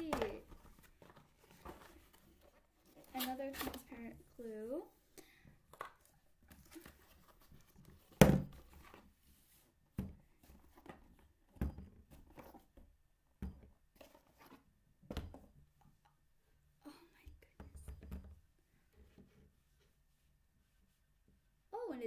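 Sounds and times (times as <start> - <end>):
cardboard box rustling: 0.0 - 4.0
plastic bottles knocking on table: 8.2 - 8.6.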